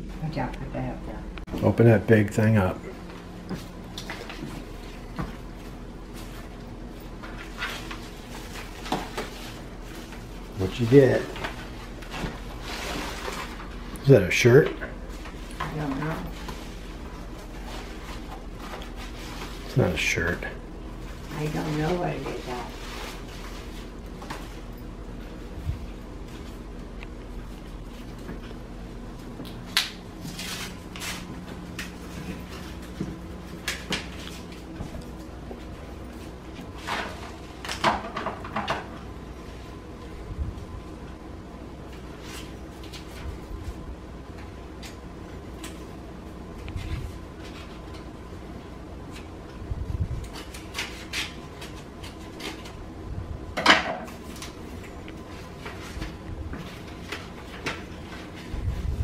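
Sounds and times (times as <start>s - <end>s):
low steady hum: 0.0s - 59.0s
paper rustling and crinkling: 3.6s - 20.4s, 21.0s - 26.7s, 29.6s - 38.1s, 41.9s - 43.8s, 50.1s - 52.8s, 54.1s - 59.0s.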